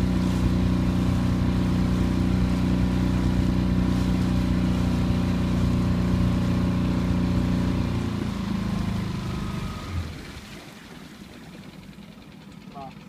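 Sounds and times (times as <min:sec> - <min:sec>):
motorboat engine running: 0:00.0 - 0:13.0.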